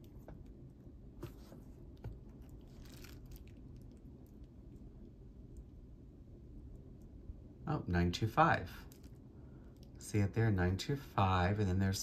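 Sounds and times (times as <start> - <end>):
low room hum: 0.0 - 12.0
crinkly wrapping rustle: 2.4 - 4.1.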